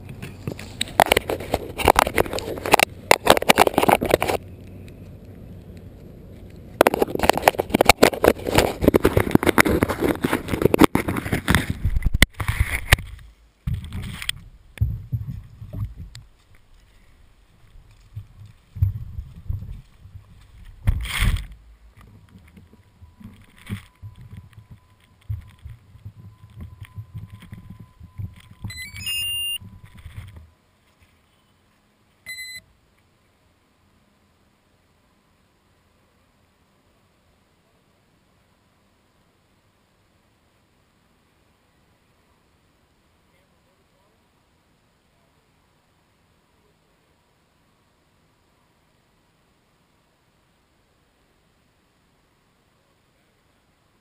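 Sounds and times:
camera handling crackling and scraping: 0.0s - 5.0s, 6.4s - 14.4s, 19.4s - 31.2s
wind rumble on microphone: 0.0s - 16.4s, 17.5s - 30.5s
footsteps on grass: 15.1s - 26.2s
loud held electronic tone: 22.8s - 30.5s, 32.3s - 32.6s
rising electronic beeps: 22.9s - 30.0s
short beep: 23.0s - 29.9s, 32.2s - 32.6s.

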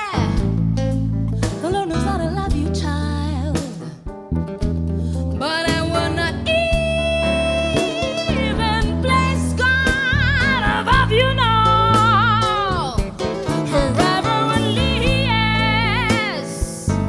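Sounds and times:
instrumental accompaniment: 0.0s - 17.0s
woman singing with vibrato: 5.4s - 17.0s.

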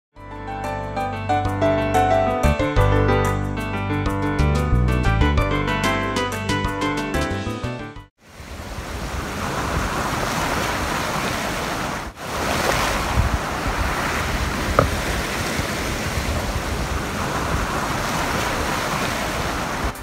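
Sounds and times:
sea water washing: 8.2s - 20.0s
wind on microphone: 8.3s - 20.0s
paddle dipping into water: 8.4s - 20.0s.

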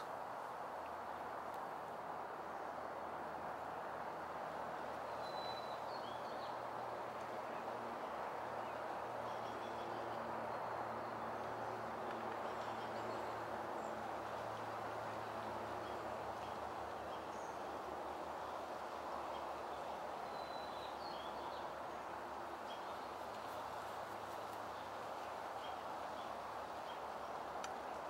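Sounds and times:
outdoor background rush: 0.0s - 28.0s
faint bird chirps: 5.2s - 6.5s.

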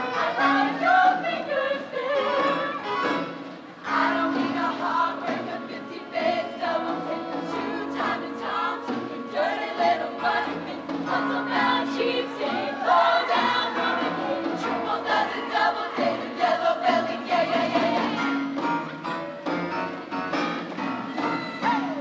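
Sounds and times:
choir singing: 0.0s - 2.9s, 3.8s - 18.3s.

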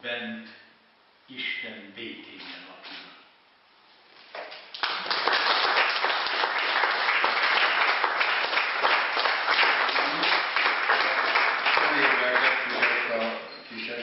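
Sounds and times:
audience applauding: 4.7s - 13.5s.

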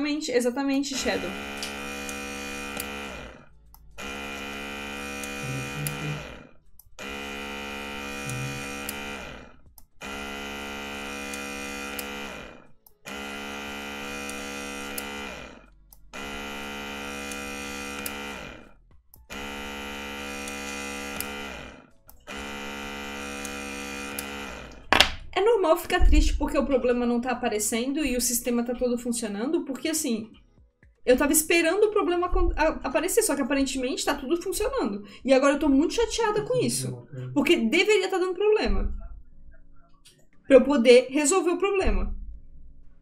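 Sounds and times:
small gearmotor whining: 1.0s - 24.9s.

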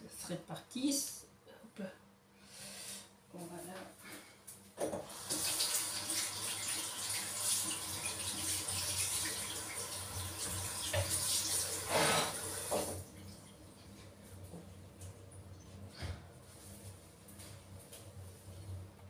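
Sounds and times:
tap running into sink: 10.4s - 13.0s.

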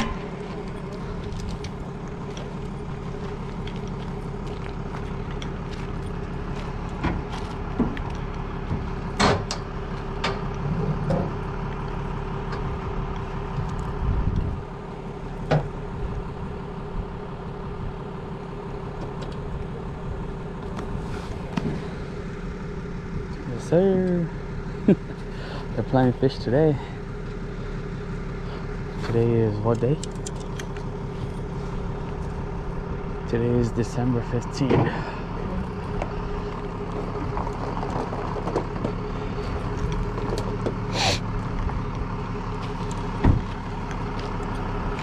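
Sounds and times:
truck idling hum: 0.0s - 45.0s.

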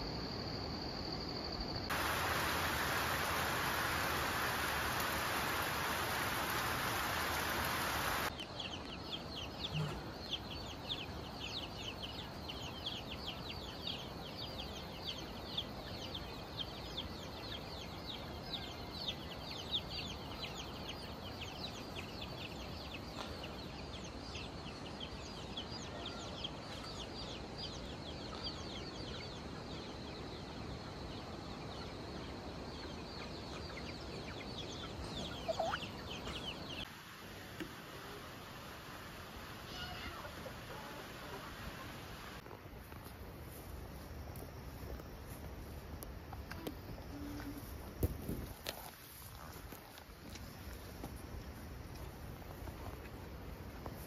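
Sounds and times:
steady hiss: 0.0s - 8.4s, 35.9s - 54.0s
chicks peeping: 31.2s - 36.8s.

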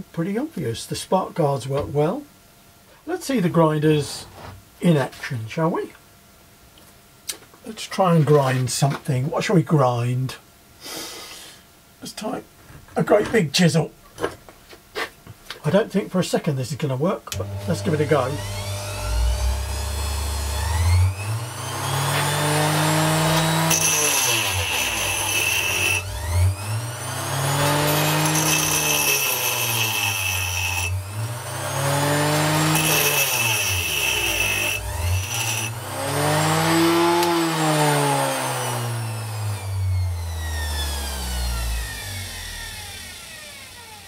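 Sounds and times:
bench grinder grinding steel: 17.4s - 44.0s.

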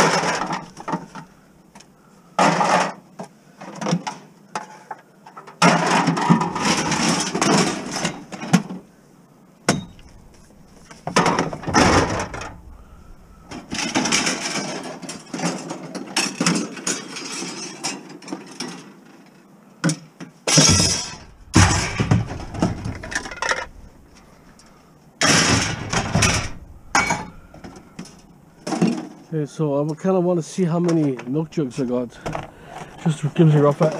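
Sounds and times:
bottles and cans clattering: 0.0s - 1.3s, 2.4s - 3.0s, 5.6s - 8.8s, 9.7s - 18.9s, 20.5s - 24.0s, 25.2s - 29.2s, 30.9s - 33.9s.

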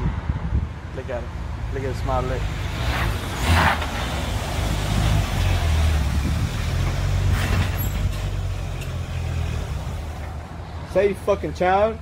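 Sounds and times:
car engine running low: 1.7s - 10.5s.

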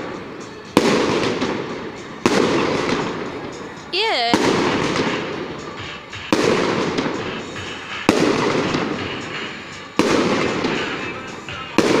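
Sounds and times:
fireworks bursting: 4.0s - 5.3s.

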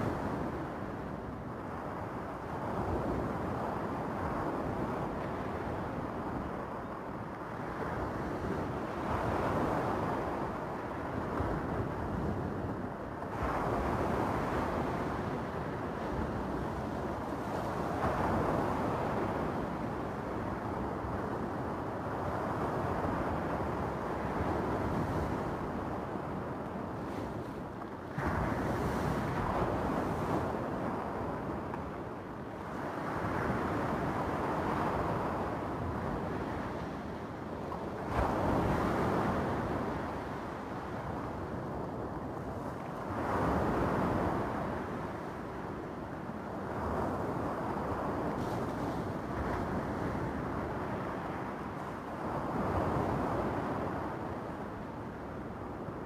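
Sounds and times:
wind on microphone: 0.0s - 56.0s.

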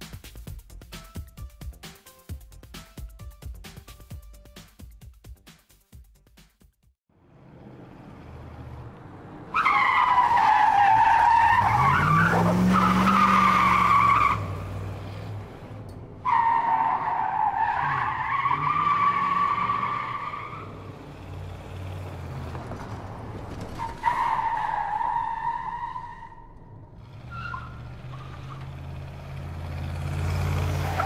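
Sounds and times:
car tyres squealing: 9.4s - 31.0s
low engine rev: 11.2s - 16.3s, 17.8s - 24.0s, 25.7s - 31.0s.

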